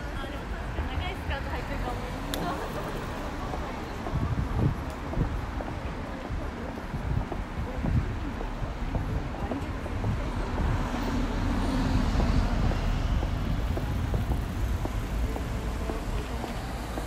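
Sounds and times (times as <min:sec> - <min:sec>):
steady traffic noise: 0:00.0 - 0:17.0.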